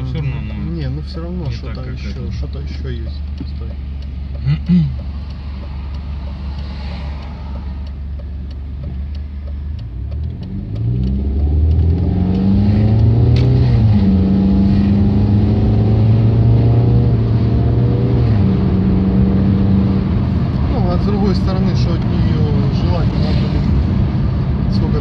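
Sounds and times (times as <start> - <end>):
car engine idling: 0.0 - 10.5.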